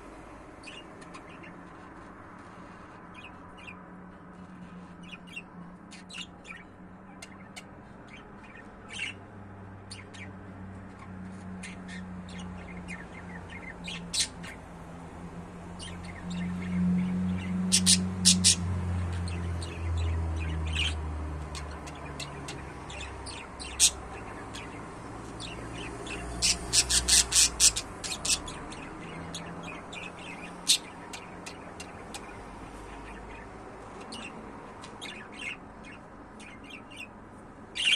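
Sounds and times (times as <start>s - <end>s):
budgerigars chirping: 5.0s - 9.2s, 11.6s - 14.6s, 15.8s - 37.9s.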